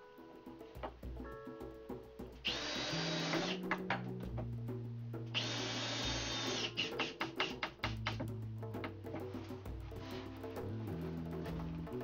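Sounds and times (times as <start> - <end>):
guitar music: 0.0 - 12.0
power drill running: 2.5 - 3.6, 5.4 - 6.9.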